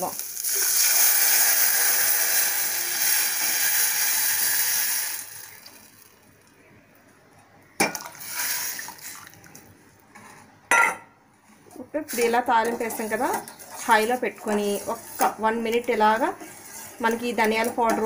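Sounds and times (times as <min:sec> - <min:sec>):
broth hissing in hot oil: 0:00.1 - 0:05.3.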